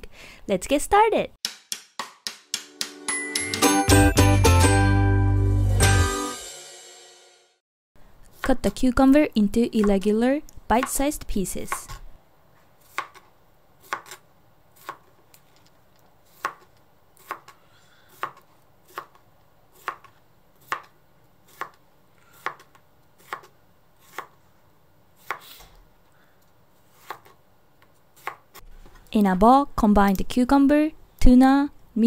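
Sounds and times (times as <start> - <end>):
knife chopping cucumber on board: 9.8 - 10.1, 10.7 - 11.0, 12.8 - 14.2, 14.8 - 15.2, 16.3 - 19.2, 19.8 - 20.9, 21.5 - 21.8, 22.4 - 24.4, 25.2 - 25.5, 27.0 - 27.4, 28.2 - 28.6.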